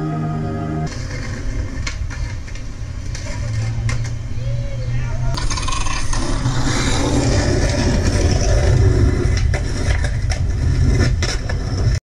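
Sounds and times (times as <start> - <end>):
skateboard clacks: 0.9 - 4.2, 5.4 - 12.0
skateboard wheels rolling on pavement: 0.9 - 12.0.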